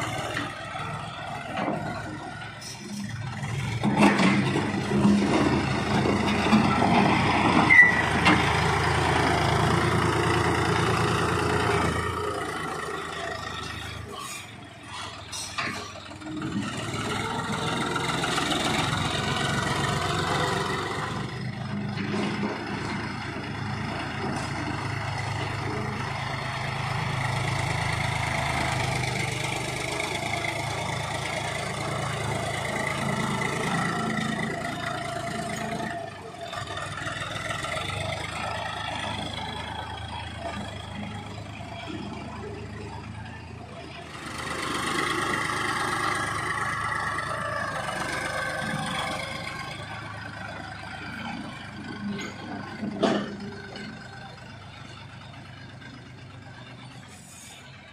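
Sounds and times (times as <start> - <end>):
tractor diesel engine running: 0.0 - 57.9
high squeak: 7.7 - 8.2.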